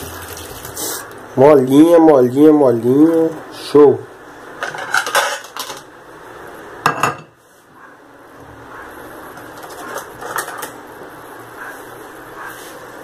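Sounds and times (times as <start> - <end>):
knife and dishes clinking: 4.6 - 5.8.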